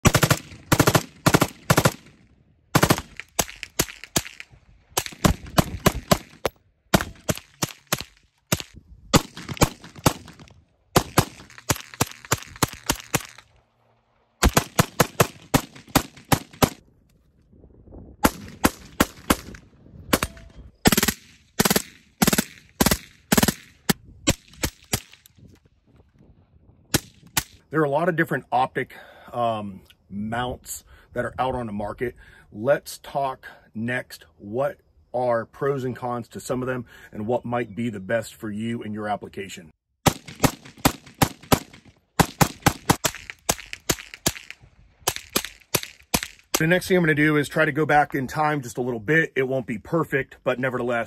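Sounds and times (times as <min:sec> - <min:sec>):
semi-automatic rifle shots: 0:00.0 - 0:16.8, 0:18.2 - 0:25.3, 0:40.0 - 0:46.8.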